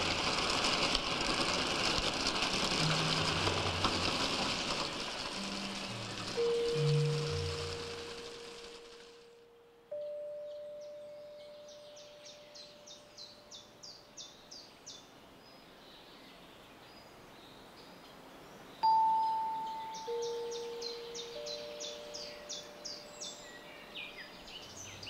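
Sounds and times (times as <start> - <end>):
bird chirping: 5.3 - 25.0
struck bell-like tones: 5.4 - 12.2, 18.8 - 23.7.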